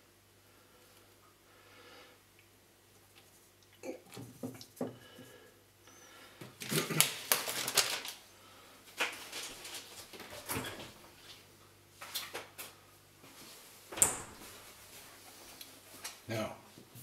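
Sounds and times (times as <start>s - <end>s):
plastic packaging crinkling: 6.6s - 8.3s, 9.0s - 10.5s.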